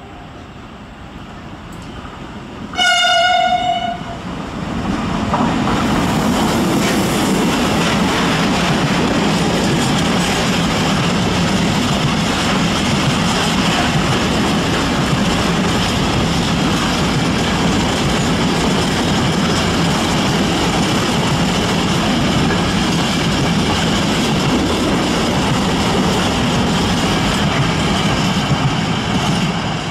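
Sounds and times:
locomotive horn blast: 2.7s - 4.2s.

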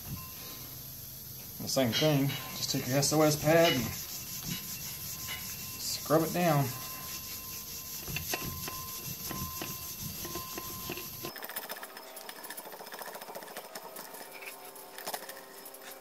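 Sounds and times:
scouring pad scrubbing metal: 1.7s - 11.3s.

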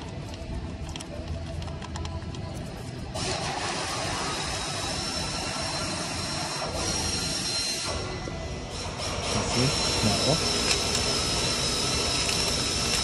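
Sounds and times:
power tool whirring hiss: 3.2s - 13.0s.

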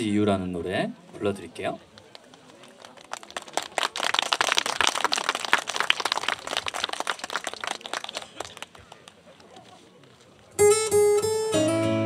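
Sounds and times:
small crowd clapping: 1.8s - 10.2s.

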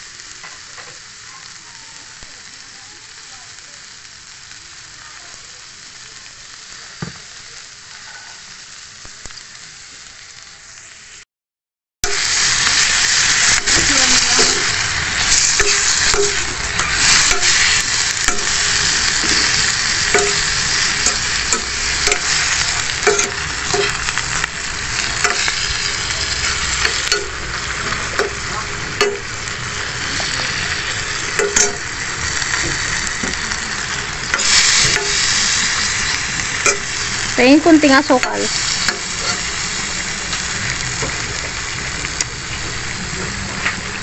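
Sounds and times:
vegetables sizzling in a pan: 0.0s - 11.2s, 12.0s - 44.0s
spatula scraping a pan: 7.9s - 8.4s.

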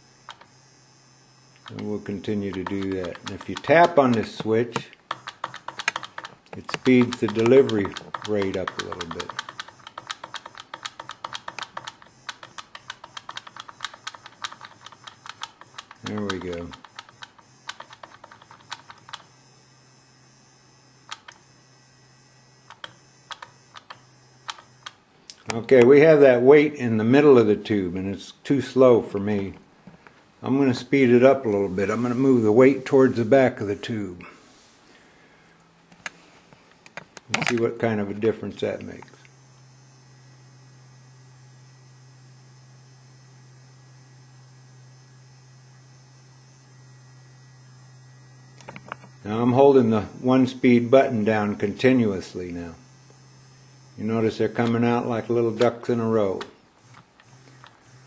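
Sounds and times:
powder trickler buzzing: 0.0s - 4.4s, 38.6s - 58.0s
sharp ticks: 1.6s - 4.5s, 5.1s - 19.2s.

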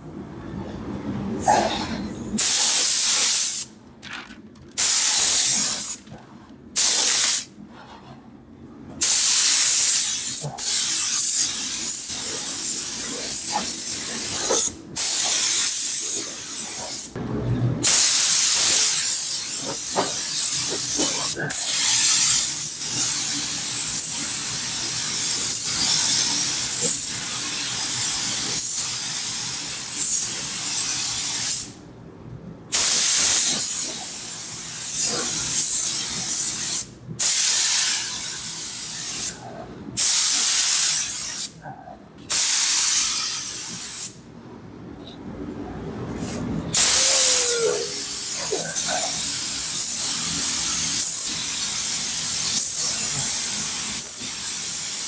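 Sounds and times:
paint spray gun hissing: 4.8s - 6.0s, 6.8s - 7.5s, 9.0s - 17.1s, 17.8s - 31.8s, 32.8s - 39.3s, 40.0s - 41.5s, 42.3s - 44.2s, 46.8s - 55.0s.

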